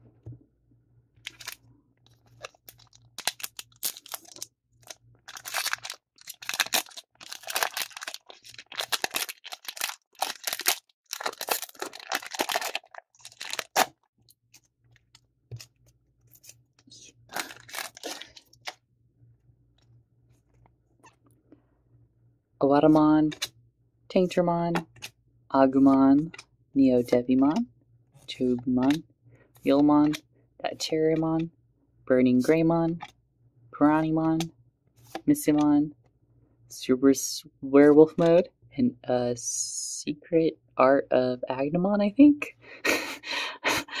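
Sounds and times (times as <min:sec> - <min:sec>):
foil pack tearing and crinkling: 0:01.3 - 0:01.6, 0:02.2 - 0:14.0, 0:17.3 - 0:18.8.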